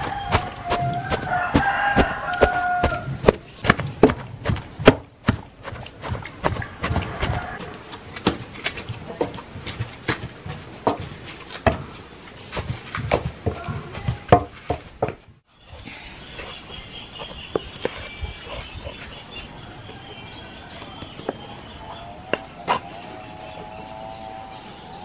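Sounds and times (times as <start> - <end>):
hen clucking: 0.0 - 3.4, 5.3 - 7.9
pestle pounding in stone mortar: 0.0 - 11.9.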